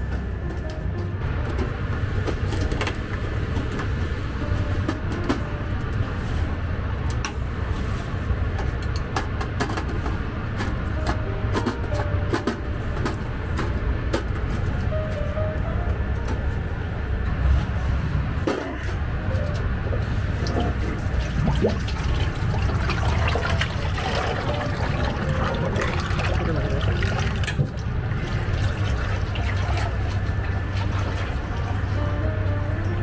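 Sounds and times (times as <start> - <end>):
steady low hum: 0.0 - 33.0
oil pouring and splashing: 20.5 - 31.9.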